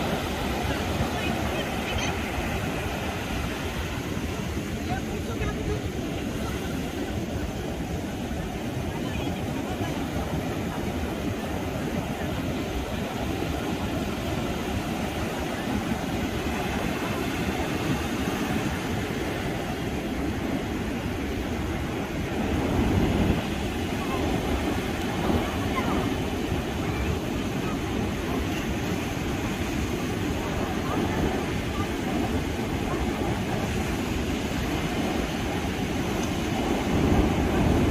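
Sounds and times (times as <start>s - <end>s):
ocean surf breaking on beach: 0.0s - 37.9s.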